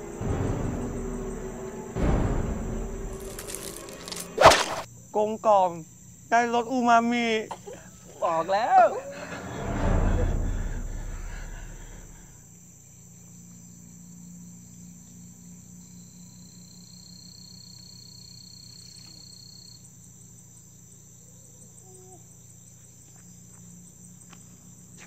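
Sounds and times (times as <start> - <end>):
insects chirring: 0.0 - 25.0
faint low hum: 9.0 - 12.4.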